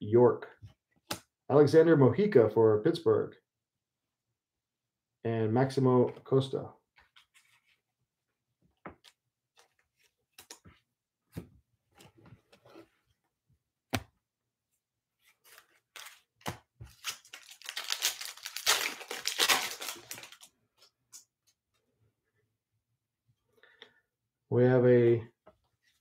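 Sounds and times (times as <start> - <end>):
foil pack crinkling torn open: 16.9 - 20.5.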